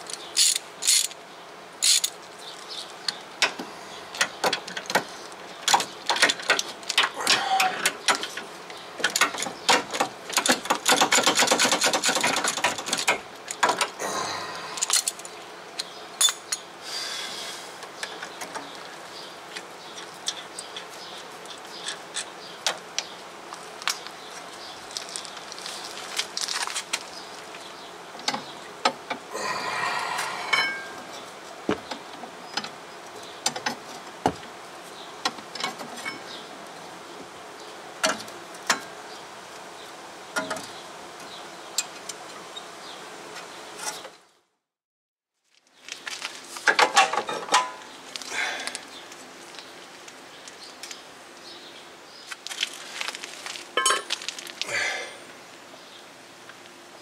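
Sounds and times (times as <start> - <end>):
ratchet wrench clicking: 0.4 - 1.1, 1.8 - 2.1.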